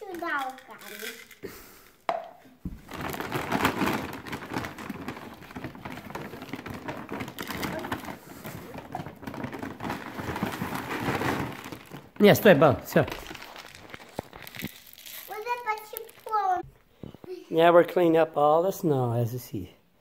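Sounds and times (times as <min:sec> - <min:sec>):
plastic bag crinkling: 0:02.7 - 0:16.6.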